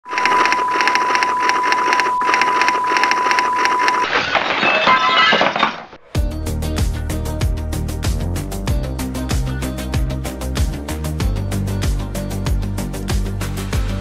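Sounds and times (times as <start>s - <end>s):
steady high beep: 0.1s - 4.0s
music with a beat: 6.2s - 14.0s.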